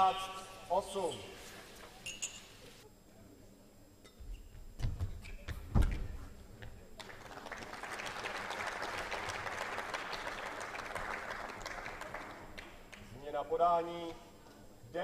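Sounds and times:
crowd applauding: 0:07.0 - 0:13.1.

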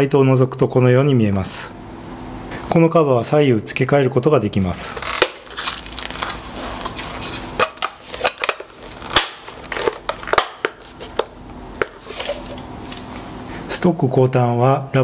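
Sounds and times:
plastic scraping: 0:04.9 - 0:13.2.

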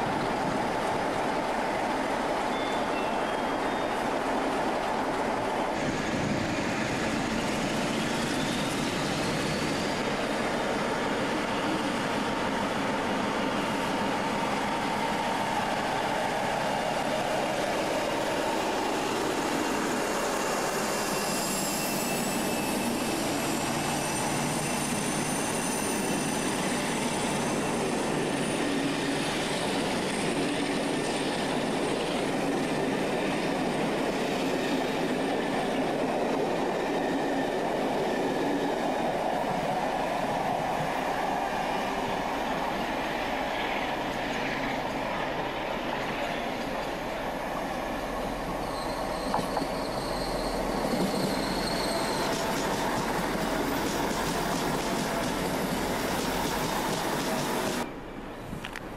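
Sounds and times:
diesel locomotive engine working: 0:00.0 - 0:58.9
rumbling wheel and rail noise: 0:00.0 - 0:58.9
high wheel squeals: 0:06.8 - 0:10.5, 0:18.1 - 0:30.3, 0:48.0 - 0:57.8.

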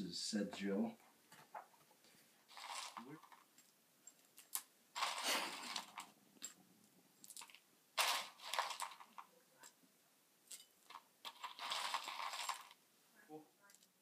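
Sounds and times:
dry cereal rattling in plastic tub: 0:02.5 - 0:03.5, 0:05.0 - 0:06.1, 0:07.3 - 0:09.3, 0:10.8 - 0:12.8.

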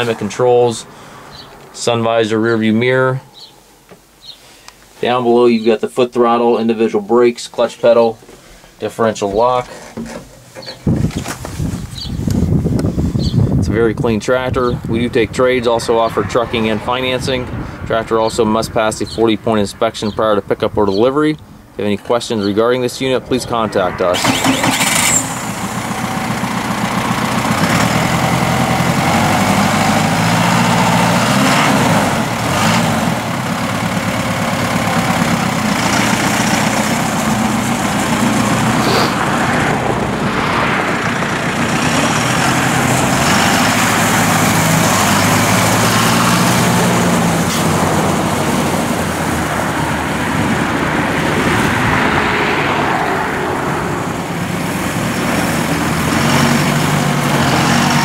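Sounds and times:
tractor diesel engine running: 0:22.5 - 0:52.0, 0:53.2 - 0:58.0.

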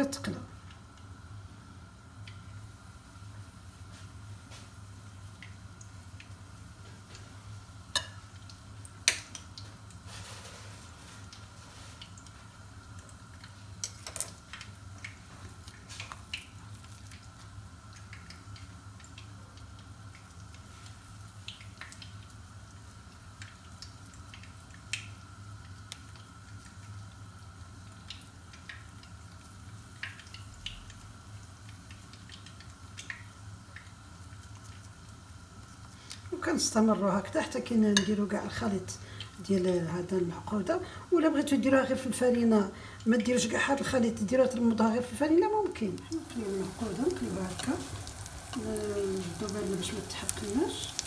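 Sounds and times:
food frying in hot oil: 0:00.0 - 0:51.0
steady low hum: 0:45.6 - 0:51.0.

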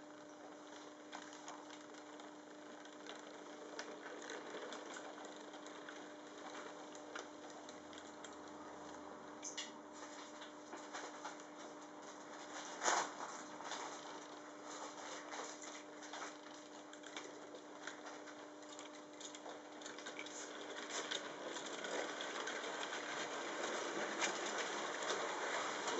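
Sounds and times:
steady electric hum: 0:00.0 - 0:25.9
model train wheels clicking on track: 0:01.2 - 0:08.1, 0:19.9 - 0:25.9.

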